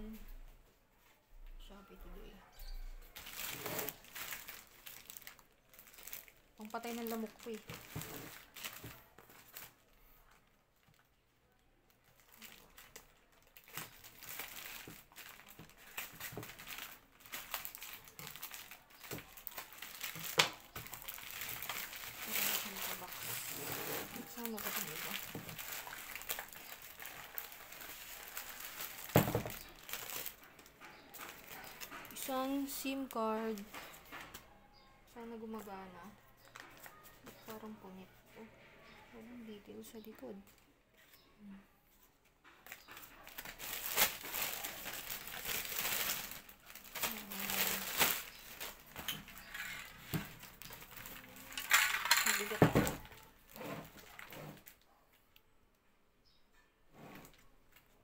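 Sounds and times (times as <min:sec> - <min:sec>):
plastic bag crinkling: 0:03.0 - 0:11.2, 0:11.9 - 0:34.3, 0:42.6 - 0:54.9.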